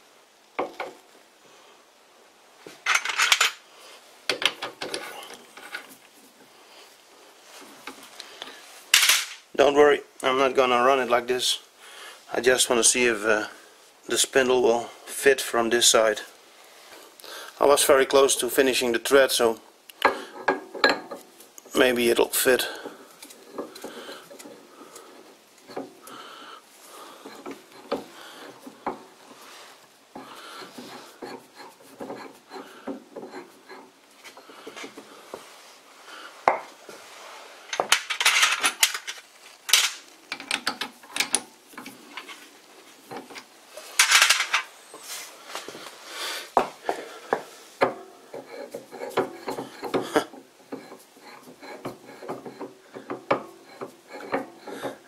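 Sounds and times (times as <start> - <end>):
metal clicks and knocks: 4.3 - 5.9, 37.7 - 42.4
metal scraping on metal: 26.8 - 35.7, 48.2 - 55.0.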